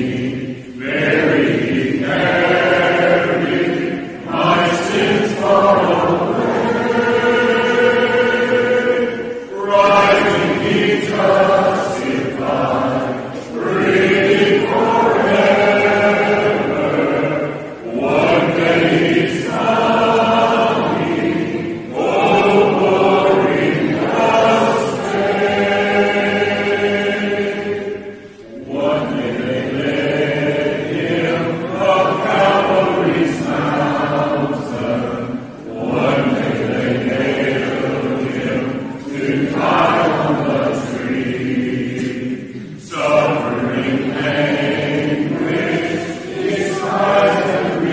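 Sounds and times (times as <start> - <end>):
choir singing a hymn: 0.0 - 47.9
singers breathing: 28.1 - 28.5.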